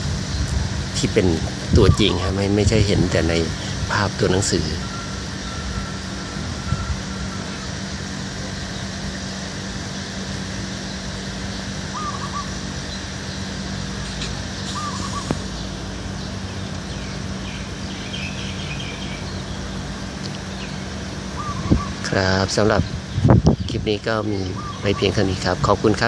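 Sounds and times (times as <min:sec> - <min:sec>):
outdoor background noise: 0:00.0 - 0:26.0
high chirping: 0:10.8 - 0:22.1, 0:22.7 - 0:25.4
bird short call: 0:11.9 - 0:12.7, 0:14.0 - 0:15.6, 0:21.4 - 0:22.0, 0:24.5 - 0:25.2.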